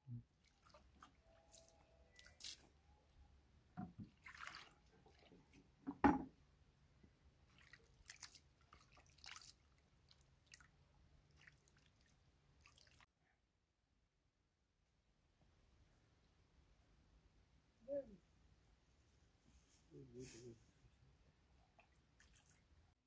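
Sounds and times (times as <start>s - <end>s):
hands splashing in water: 0.5s - 2.6s, 4.0s - 5.3s, 7.5s - 10.7s
knock: 3.8s - 4.0s, 5.8s - 6.3s
water pouring into a metal bowl: 4.2s - 5.4s.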